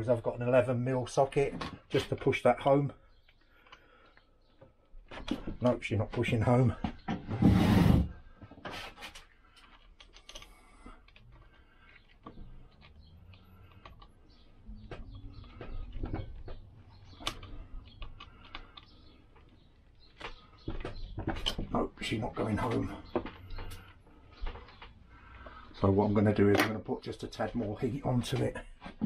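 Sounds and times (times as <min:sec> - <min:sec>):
small metal clicks and taps: 0:09.2 - 0:21.7.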